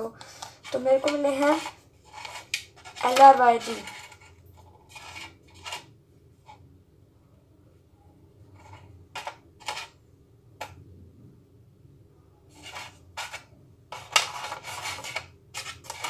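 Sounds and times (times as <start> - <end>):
rustling scrape: 0.2 - 6.6, 8.4 - 10.0, 12.5 - 16.0.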